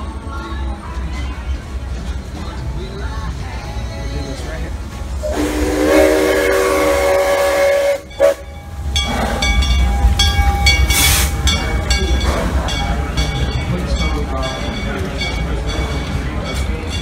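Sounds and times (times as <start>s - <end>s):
locomotive running past: 0.0s - 17.0s
steam locomotive whistle: 5.2s - 8.5s
steam hiss: 10.8s - 11.7s.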